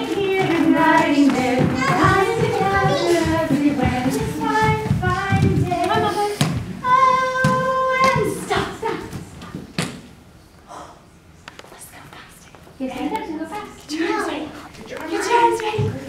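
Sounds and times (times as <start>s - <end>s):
person singing children's song: 0.0s - 9.1s.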